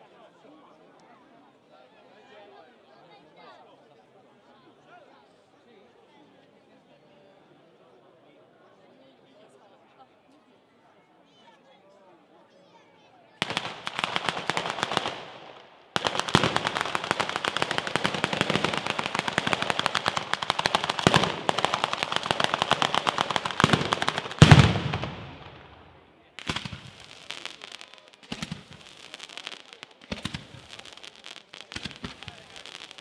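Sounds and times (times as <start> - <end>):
firecrackers rattling: 13.4 - 33.0
fireworks popping and crackling: 13.4 - 33.0.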